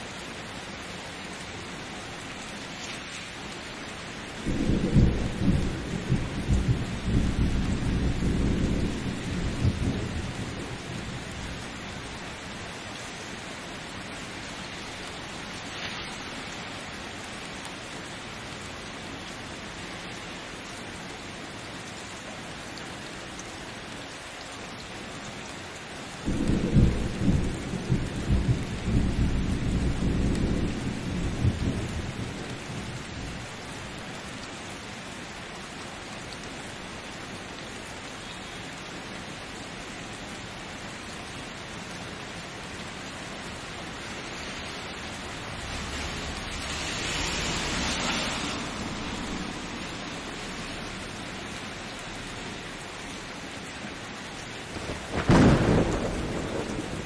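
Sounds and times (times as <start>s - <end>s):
steady rain: 0.0s - 57.0s
thunder rolling: 4.4s - 11.6s, 26.3s - 32.4s, 54.7s - 57.0s.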